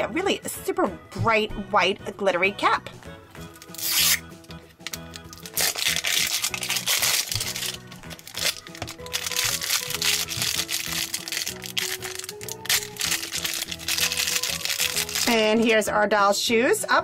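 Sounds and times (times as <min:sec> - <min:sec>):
background music: 0:00.0 - 0:17.0
plastic wrapping crinkling and tearing: 0:03.5 - 0:04.2, 0:04.8 - 0:15.4.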